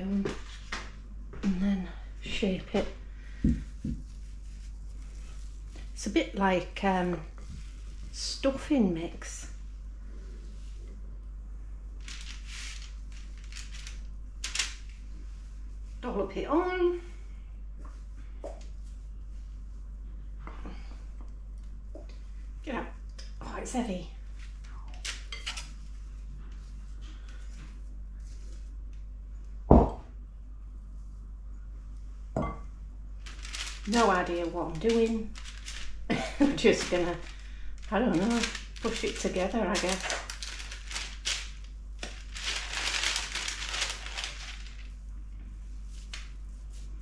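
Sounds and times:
baking parchment crinkling: 11.9s - 16.4s, 24.2s - 29.0s, 33.2s - 47.0s.

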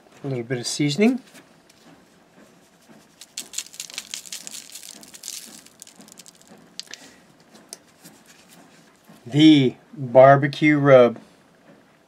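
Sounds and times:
shaker bottle rattling granules: 3.0s - 7.2s.

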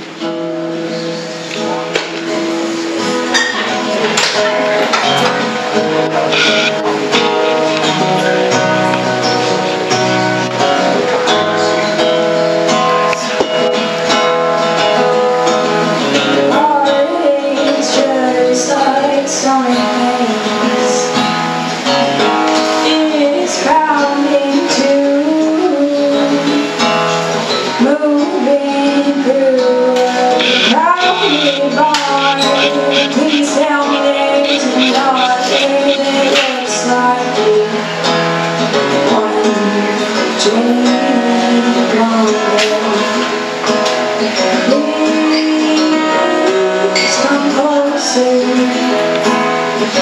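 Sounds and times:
acoustic guitars playing: 0.0s - 50.0s
woman singing: 16.1s - 50.0s.

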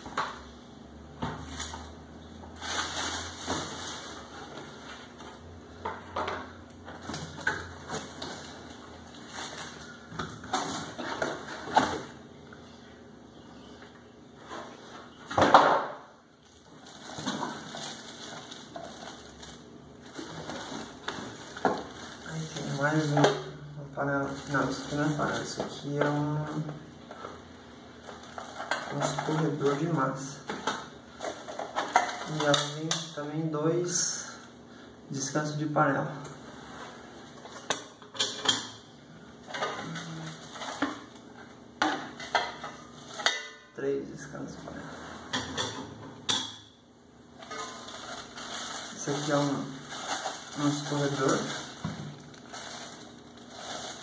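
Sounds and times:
plastic wrapping crinkling: 1.4s - 5.5s, 7.0s - 12.2s, 16.4s - 26.8s, 28.0s - 32.8s, 39.5s - 43.3s, 47.4s - 54.0s.

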